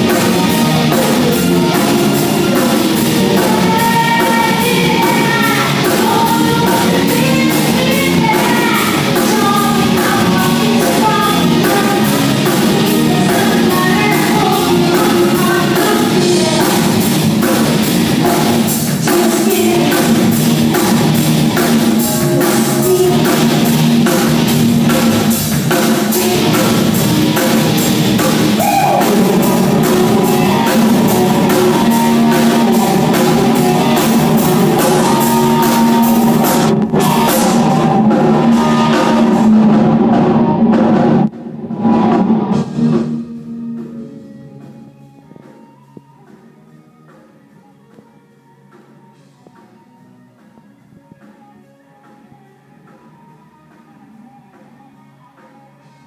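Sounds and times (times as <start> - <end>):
electric guitar: 0.0 - 46.6
bass guitar: 0.0 - 48.1
drums: 0.0 - 56.0
keyboard: 0.0 - 56.0
woman singing: 3.2 - 17.0, 19.0 - 20.2, 22.4 - 23.8, 26.0 - 27.5, 28.9 - 39.4.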